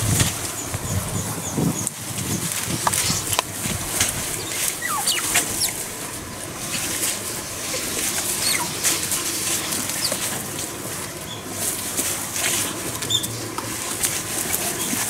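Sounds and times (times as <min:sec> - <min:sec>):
rustling of dry grass: 0:00.0 - 0:15.0
otters squeaky chirps: 0:04.4 - 0:05.8, 0:08.2 - 0:09.0.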